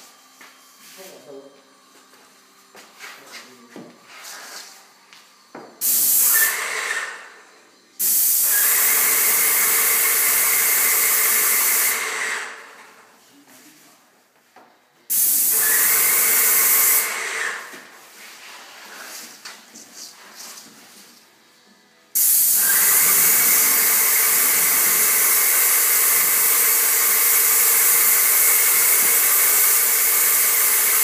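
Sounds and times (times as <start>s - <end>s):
spray gun hissing: 5.8s - 6.6s, 8.0s - 12.1s, 15.1s - 17.2s, 22.2s - 31.0s.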